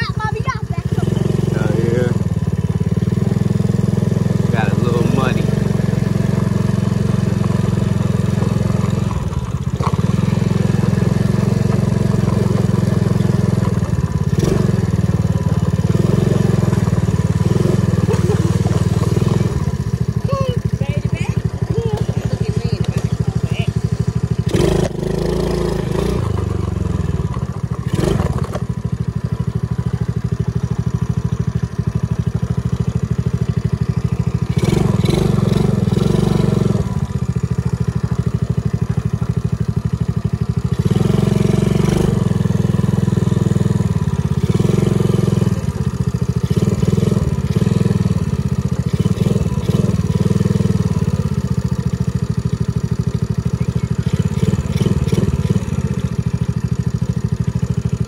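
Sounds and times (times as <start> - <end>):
small atv rumbling on dirt: 0.0 - 58.0.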